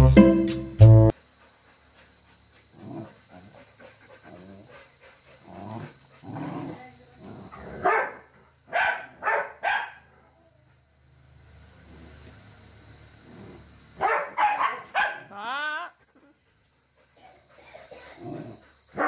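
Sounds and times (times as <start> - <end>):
dog growling: 2.7 - 7.9, 13.2 - 13.8, 17.2 - 19.0
dog barking: 7.8 - 10.2, 14.0 - 15.3.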